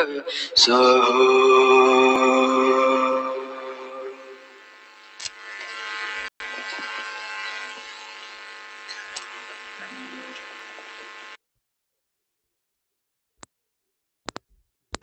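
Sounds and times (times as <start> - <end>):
electrical buzz: 1.2 - 11.4.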